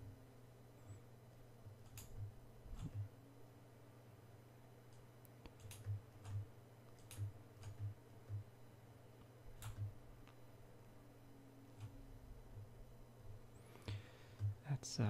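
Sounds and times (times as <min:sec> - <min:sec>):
steady low hum: 0:00.0 - 0:15.0
computer mouse clicks: 0:01.8 - 0:03.1, 0:04.9 - 0:08.5, 0:09.6 - 0:10.4.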